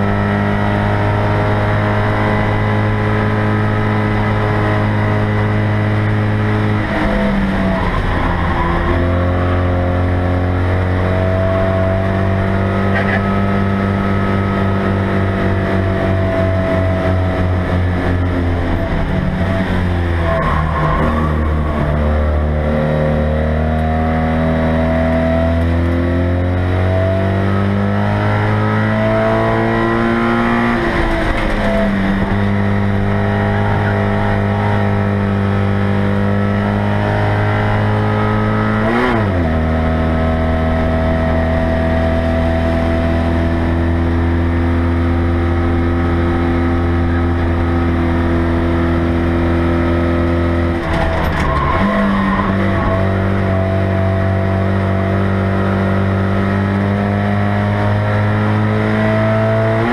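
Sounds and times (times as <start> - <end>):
car engine running hard: 0.0 - 59.9.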